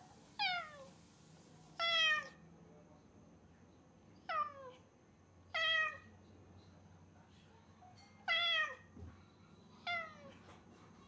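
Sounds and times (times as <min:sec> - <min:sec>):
cat meowing loudly: 0:01.8 - 0:02.4, 0:05.5 - 0:06.1, 0:08.2 - 0:08.9.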